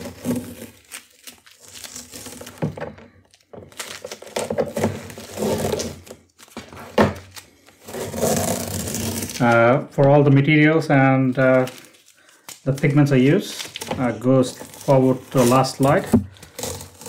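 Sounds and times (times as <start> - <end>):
masking tape peeling off paper: 0.0 - 2.6.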